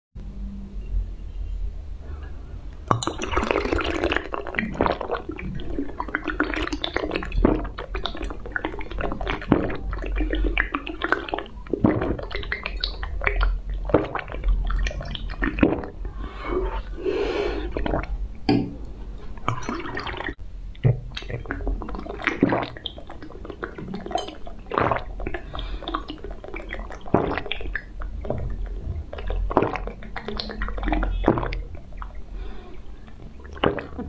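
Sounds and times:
wet slurping and sucking: 3.2 - 18.2, 21.2 - 32.8.

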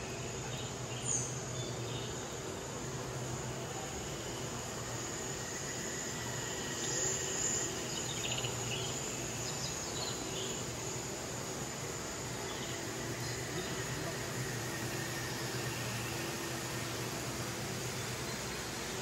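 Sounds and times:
background hum and hiss: 0.0 - 19.0.

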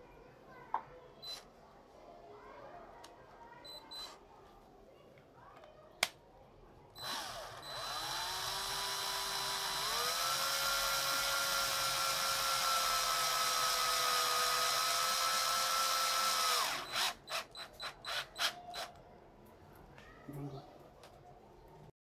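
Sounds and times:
drill motor whine: 7.0 - 18.9.

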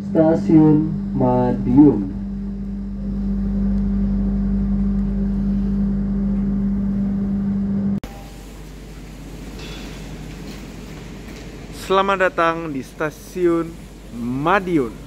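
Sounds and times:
low rumble: 0.0 - 8.1
train machinery hum: 0.0 - 15.0.

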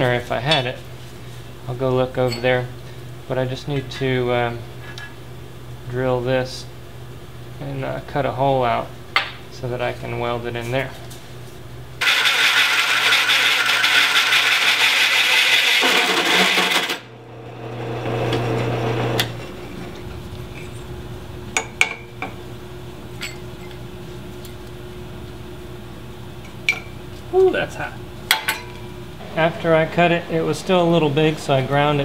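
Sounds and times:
hole saw cutting steel: 12.0 - 17.1
drill press motor running: 12.0 - 19.5.

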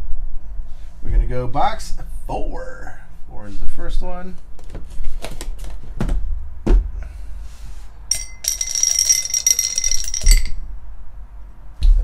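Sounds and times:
die rattling in a cup: 8.1 - 10.6.

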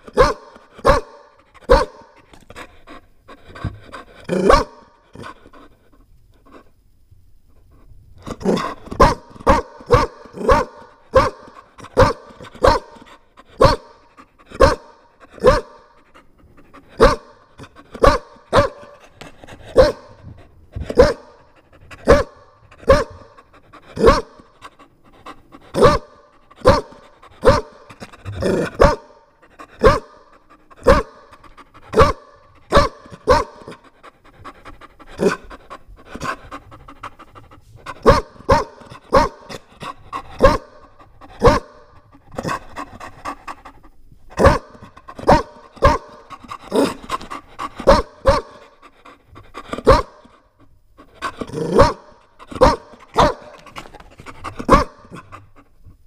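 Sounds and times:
dog barking loudly: 0.0 - 2.2, 4.3 - 5.4, 8.4 - 15.9, 16.9 - 20.2, 20.8 - 21.4, 22.0 - 24.7, 25.7 - 33.9, 37.8 - 43.2, 44.3 - 48.8, 49.6 - 50.4, 51.2 - 55.3.

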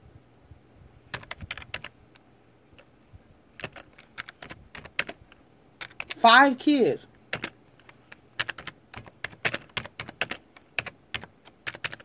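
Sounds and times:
computer keyboard typing: 1.1 - 2.0, 3.6 - 6.2, 7.3 - 12.0.

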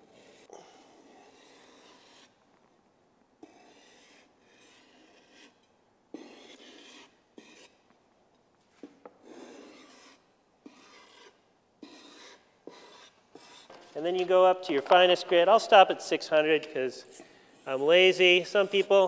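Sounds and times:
knife rasping on sandpaper: 0.0 - 2.4, 3.4 - 5.6, 6.2 - 7.8, 9.2 - 14.0, 17.5 - 19.0.

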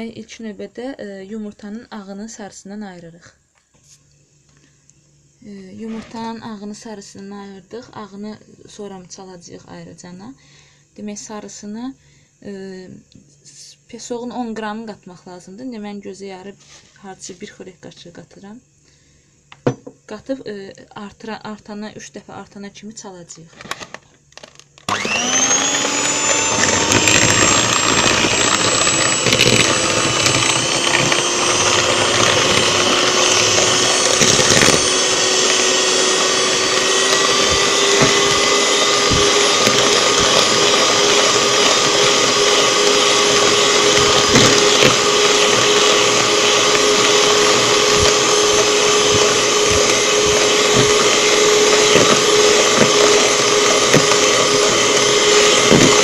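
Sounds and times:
electric hand mixer whine: 24.4 - 56.0.

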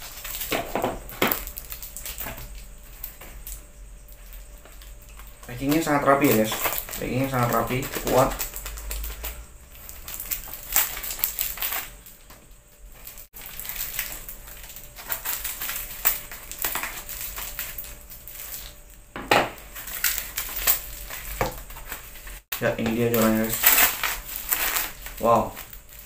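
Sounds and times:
packing tape peeling and tearing: 5.5 - 12.0, 13.1 - 18.8, 19.7 - 22.1, 23.0 - 26.0.

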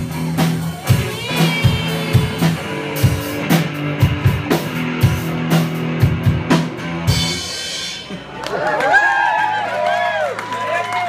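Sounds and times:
drum kit beat: 0.0 - 8.4
electric guitar: 0.0 - 8.5
rock band playing live: 0.0 - 8.7.

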